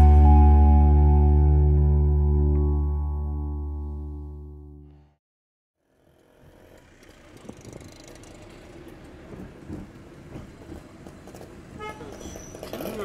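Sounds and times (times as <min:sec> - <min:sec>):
traffic and road noise: 0:05.8 - 0:13.0
car horn toot: 0:11.8 - 0:12.2.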